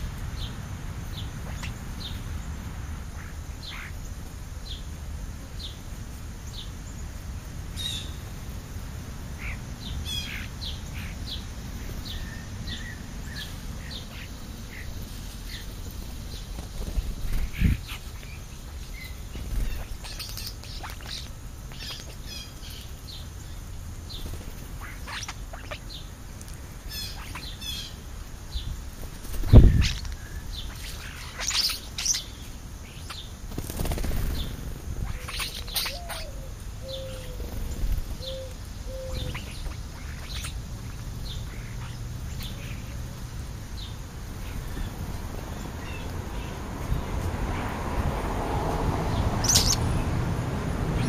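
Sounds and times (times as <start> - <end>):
wings flapping: 15.2 - 18.4, 19.1 - 22.2, 24.2 - 25.8, 28.9 - 31.8, 33.0 - 36.0, 37.2 - 38.5
birds chirping and whistling: 16.3 - 23.6, 24.2 - 26.1, 26.9 - 28.7, 29.4 - 43.0, 49.4 - 50.0.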